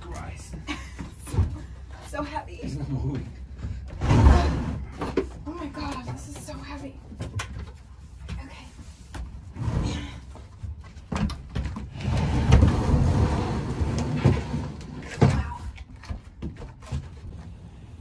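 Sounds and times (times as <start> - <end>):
metal cabinet scraping and rattling: 3.7 - 5.3, 11.8 - 15.6.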